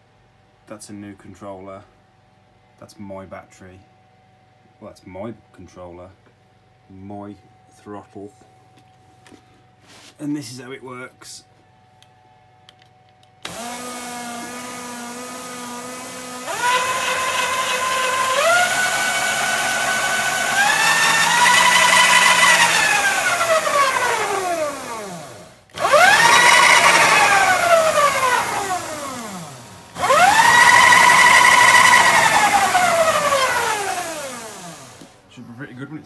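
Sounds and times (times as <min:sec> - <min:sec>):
electric motor whining: 0:13.4 - 0:35.2.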